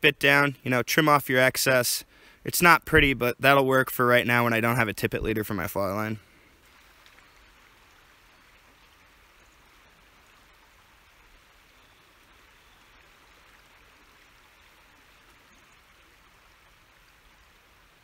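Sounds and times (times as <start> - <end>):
river water flowing: 5.5 - 18.0.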